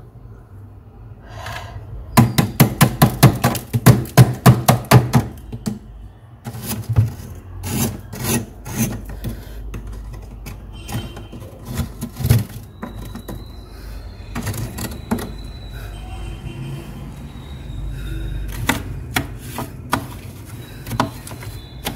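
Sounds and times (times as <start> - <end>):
metal spoon scraping frost: 6.5 - 9.2.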